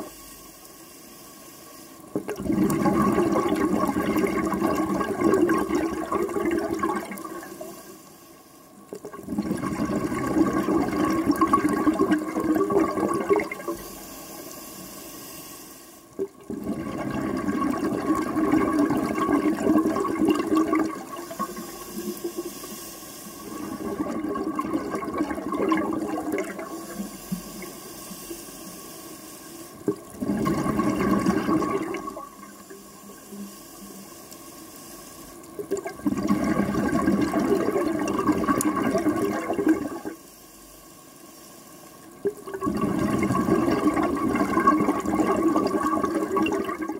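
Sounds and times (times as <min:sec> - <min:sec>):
exhaled bubbles rushing: 0:02.1 - 0:07.7, 0:08.9 - 0:13.8, 0:16.2 - 0:22.5, 0:23.4 - 0:27.7, 0:29.8 - 0:32.9, 0:35.6 - 0:40.2, 0:42.2 - 0:46.9
diver inhaling through regulator: 0:07.4 - 0:08.7, 0:13.7 - 0:16.2, 0:21.0 - 0:24.1, 0:26.6 - 0:29.8.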